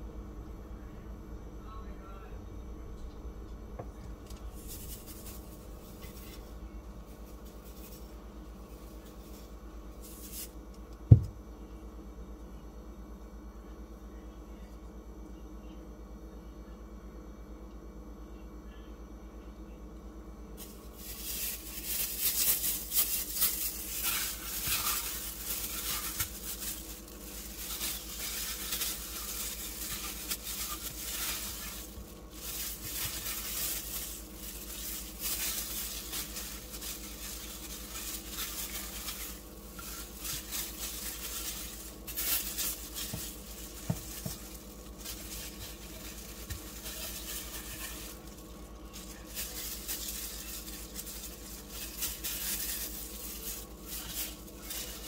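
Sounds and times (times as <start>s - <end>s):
plastic gloves crinkling: 4.2s - 11.2s, 20.6s - 55.0s
wet rubbing and slapping of fish: 20.6s - 55.0s.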